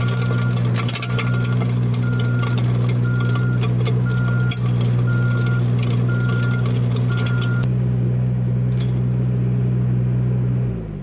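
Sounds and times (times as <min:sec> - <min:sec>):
power rake tilling soil: 0:00.0 - 0:07.7, 0:08.5 - 0:09.3
reversing beeper: 0:00.0 - 0:07.7
skid steer engine running: 0:00.0 - 0:11.0.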